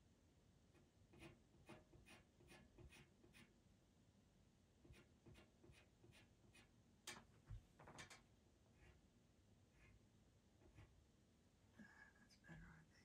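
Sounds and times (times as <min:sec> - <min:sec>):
pencil scratching on paper: 0:01.1 - 0:03.6, 0:04.8 - 0:06.8, 0:08.8 - 0:09.0
sharp scrape: 0:01.2 - 0:03.5.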